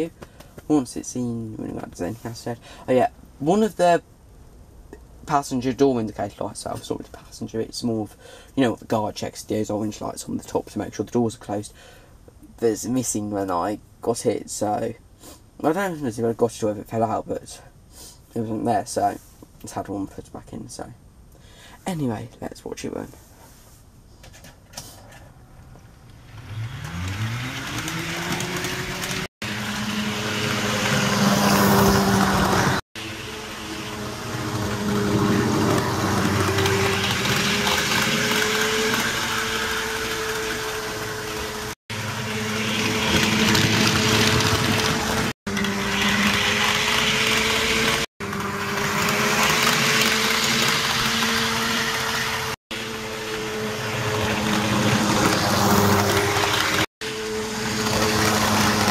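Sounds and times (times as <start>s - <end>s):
wheels rumbling on track: 26.2s - 58.9s
model train motor whine: 26.3s - 58.9s.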